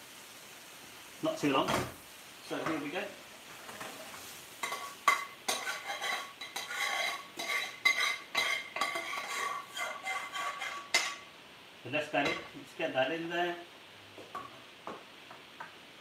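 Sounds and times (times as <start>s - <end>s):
metal utensil scraping a pan: 3.6s - 11.3s.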